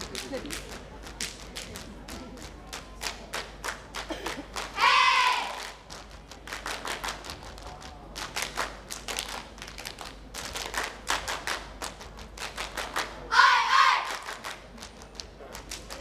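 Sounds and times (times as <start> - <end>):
hand claps and body slaps: 0.0 - 4.8, 5.5 - 13.2, 14.0 - 16.0
group of voices calling out: 4.8 - 5.7, 13.3 - 14.2.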